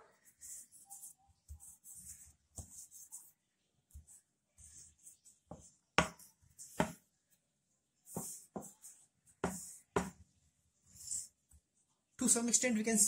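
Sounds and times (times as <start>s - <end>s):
dough scraping on board: 3.9s - 7.1s, 8.1s - 10.2s
dough knocking against board: 6.8s - 7.0s, 9.4s - 10.2s.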